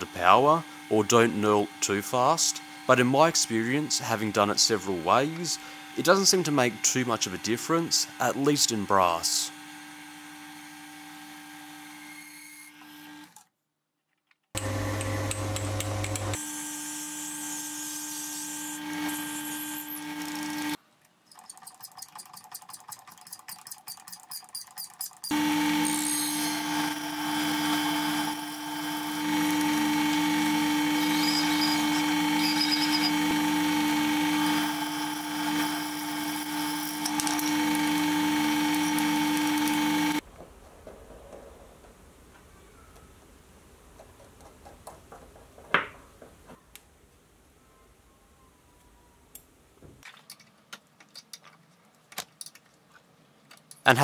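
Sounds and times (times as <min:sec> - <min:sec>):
lathe motor humming: 0:00.0 - 0:08.9, 0:14.6 - 0:16.6, 0:25.3 - 0:40.2
turning tool cutting brass: 0:00.0 - 0:13.3, 0:14.6 - 0:20.8, 0:24.8 - 0:40.2.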